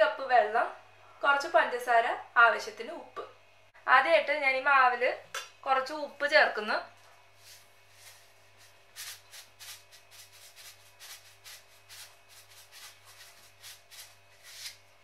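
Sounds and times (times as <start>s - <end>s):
salt shaken into steel bowl: 7.4s - 14.8s.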